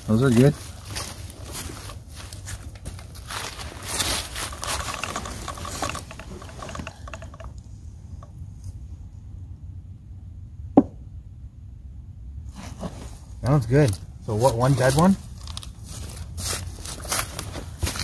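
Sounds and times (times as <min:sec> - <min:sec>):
hands and clothing rustling: 0:00.0 - 0:06.9, 0:14.7 - 0:18.0.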